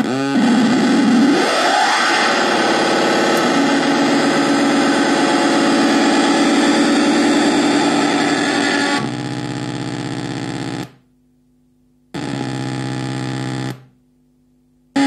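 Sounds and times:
harsh distorted feedback noise: 0.0 - 11.0, 12.2 - 14.0.

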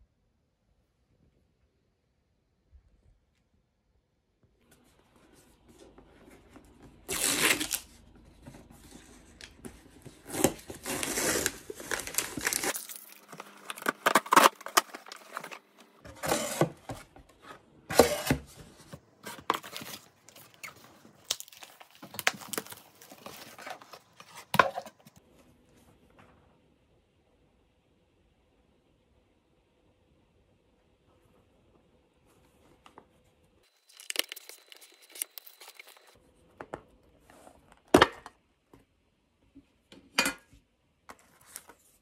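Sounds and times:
paper ripping and crinkling: 7.0 - 7.9, 10.2 - 16.7, 33.7 - 36.2.

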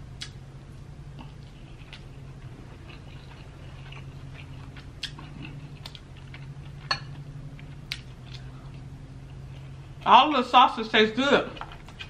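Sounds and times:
steady low hum: 0.0 - 12.0
person chewing: 0.2 - 0.4, 1.1 - 10.0.

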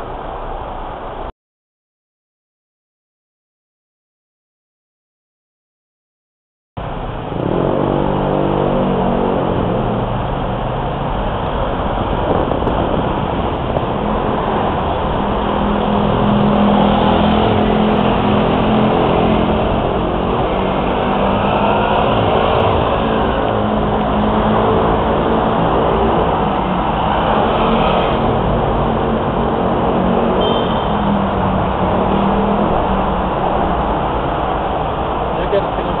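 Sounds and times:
road noise: 0.0 - 1.3, 6.8 - 36.0
car engines speeding up: 6.8 - 36.0.

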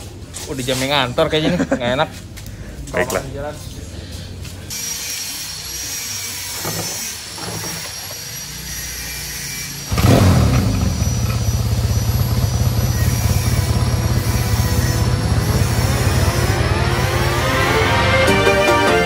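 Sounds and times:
motorcycle engine running: 8.4 - 17.9.

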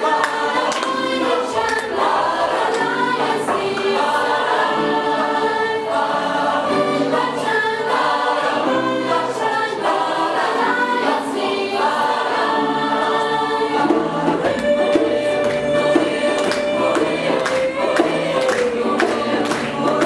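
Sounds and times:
mixed choir singing: 0.0 - 20.0.

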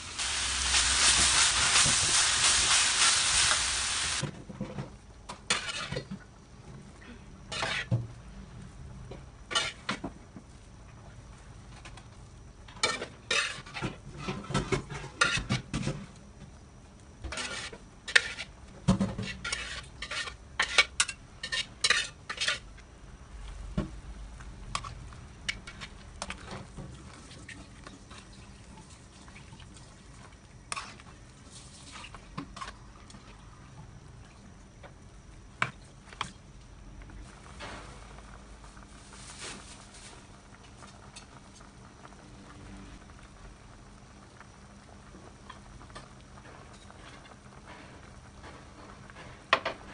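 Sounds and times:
utensil scraping a pot: 5.5 - 6.1, 7.5 - 7.9, 12.8 - 15.5, 17.3 - 18.5, 19.2 - 22.7.

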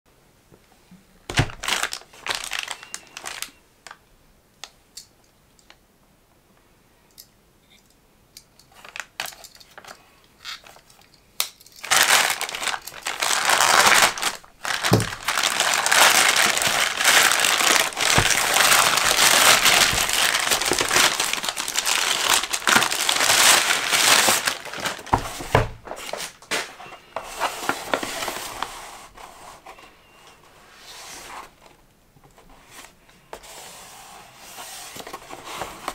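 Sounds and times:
plastic bag tearing: 1.3 - 3.6, 11.8 - 26.6
plastic mailer bag crinkling: 1.3 - 4.0, 11.8 - 28.7.

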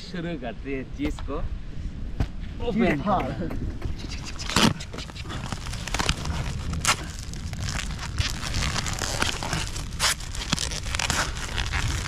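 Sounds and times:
packaging tearing and crinkling: 4.5 - 12.0.

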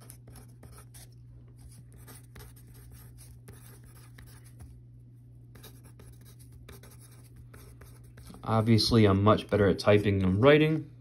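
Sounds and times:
pen scratching on paper: 0.0 - 4.8, 5.5 - 8.4
steady low hum: 0.0 - 11.0.

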